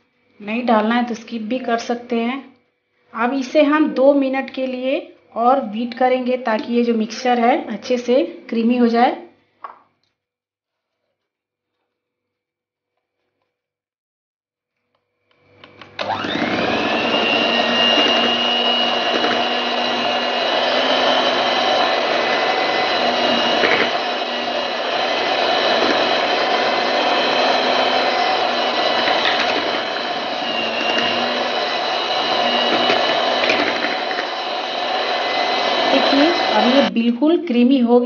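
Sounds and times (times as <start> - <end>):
electric hand mixer whirring: 15.7 - 37.0.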